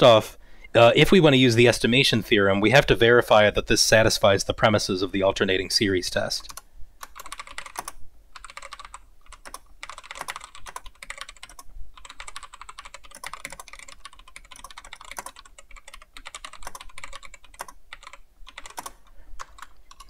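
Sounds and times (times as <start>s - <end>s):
fast typing on keyboard: 6.4s - 20.0s.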